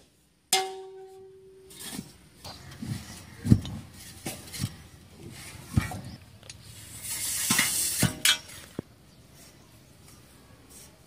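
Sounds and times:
soil scraping hiss: 4.0s - 11.0s.

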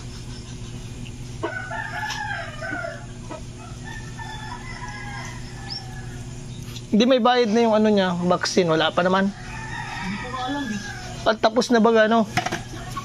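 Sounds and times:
rooster crowing: 1.4s - 6.5s, 9.0s - 13.0s.

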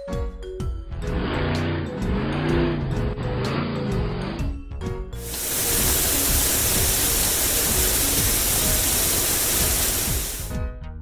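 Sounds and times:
light background music: 0.0s - 11.0s
water spraying hiss: 5.2s - 10.6s.

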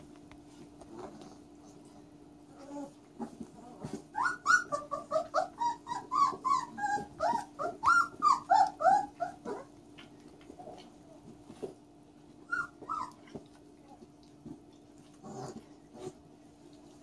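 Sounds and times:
puppies yipping and squealing: 2.6s - 9.8s, 12.4s - 13.5s.

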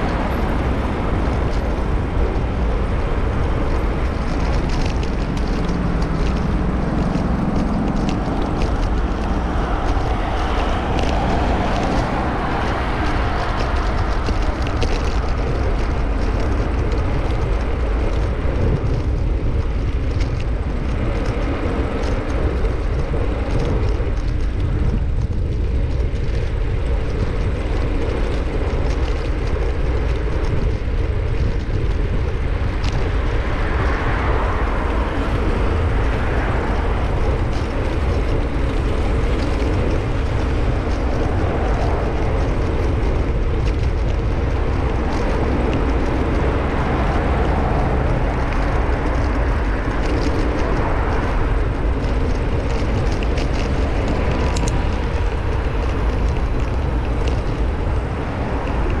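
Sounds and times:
passing road traffic: 0.0s - 59.0s
wind rumble on microphone: 0.0s - 59.0s.

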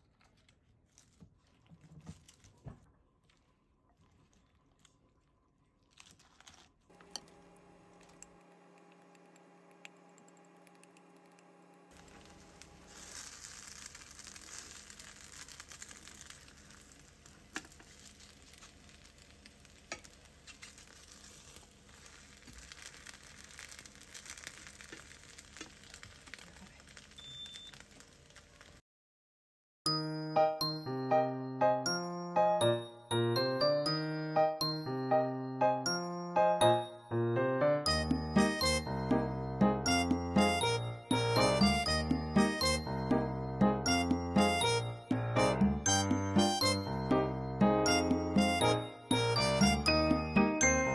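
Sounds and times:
batter sizzling in a frying pan: 10.4s - 28.8s.

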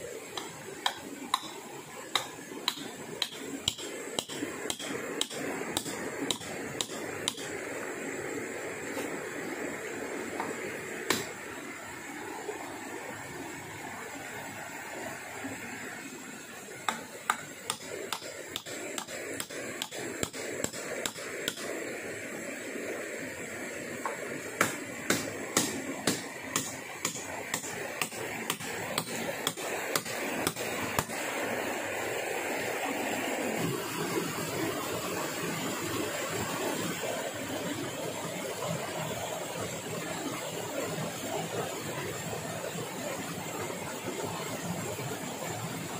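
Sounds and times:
hand tool striking wood: 0.4s - 7.5s, 11.1s - 11.3s, 16.9s - 21.7s, 24.0s - 31.1s.

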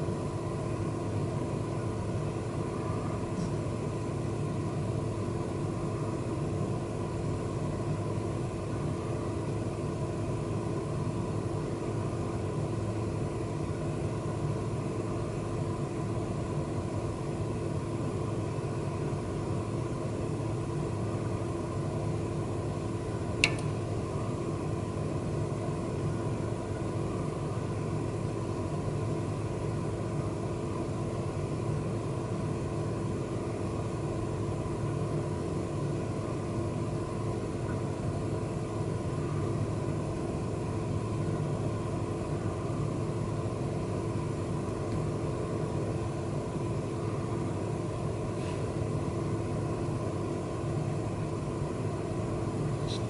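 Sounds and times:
low droning hum: 0.0s - 53.0s
sharp click: 23.4s - 23.8s.

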